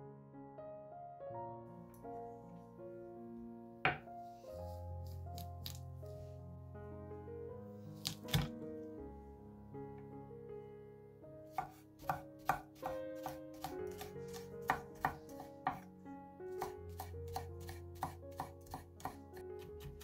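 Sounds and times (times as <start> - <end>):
knife knocking on wooden board: 3.9 - 4.1, 11.6 - 15.8.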